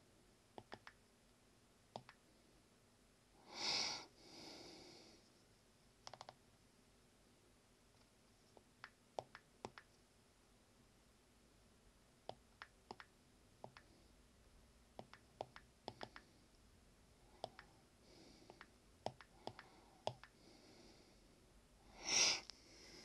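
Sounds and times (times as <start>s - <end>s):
breath-like rush of air: 21.9s - 23.0s.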